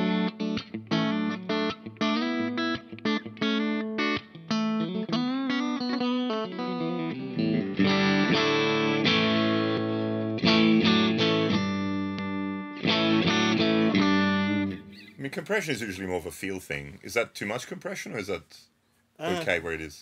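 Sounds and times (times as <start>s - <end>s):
compressed electric guitar: 0.0s - 15.2s.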